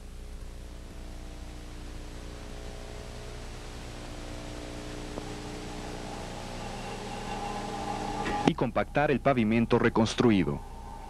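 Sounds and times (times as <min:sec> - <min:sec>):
diesel engine running: 0:00.0 - 0:08.8.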